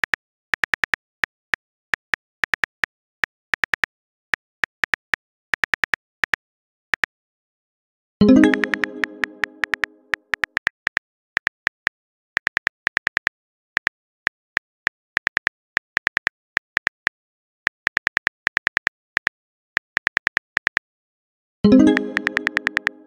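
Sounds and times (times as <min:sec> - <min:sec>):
phone keyboard typing clicks: 0:08.3 - 0:09.9, 0:21.7 - 0:23.0.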